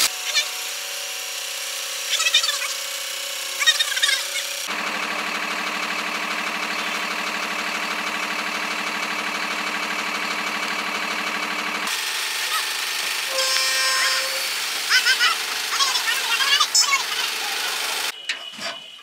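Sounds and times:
diesel truck engine idling: 3.9s - 13.3s, 14.5s - 18.2s.

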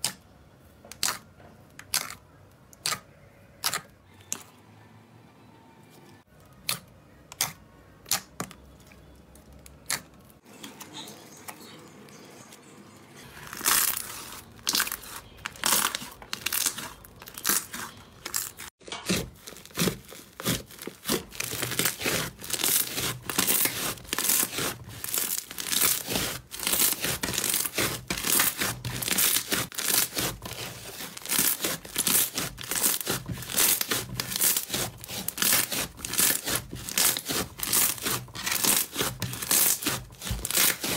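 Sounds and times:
slime crackling and tearing: 13.4s - 40.9s.

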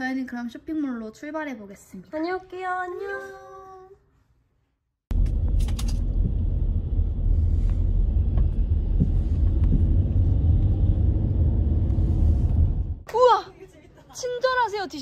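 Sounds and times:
car cabin rumble: 5.1s - 13.0s.

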